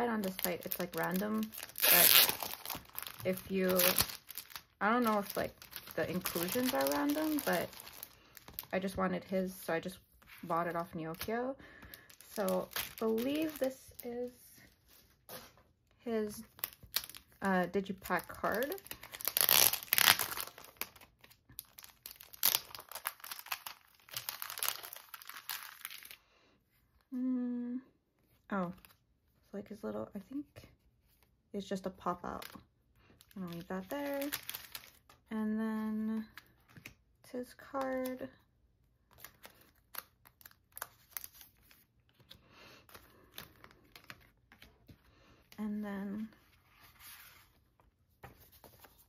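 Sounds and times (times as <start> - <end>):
plastic sleeve crinkling: 0.0 - 9.0, 10.3 - 15.5, 16.3 - 26.2, 33.2 - 35.2.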